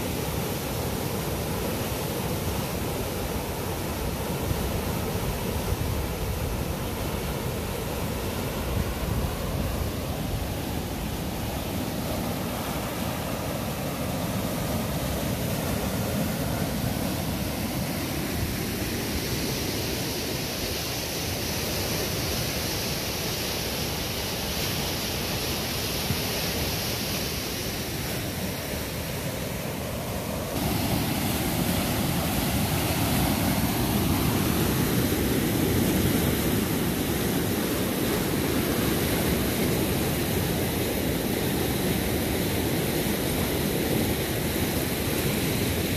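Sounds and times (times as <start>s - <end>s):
flooded river rushing: 0.0s - 45.9s.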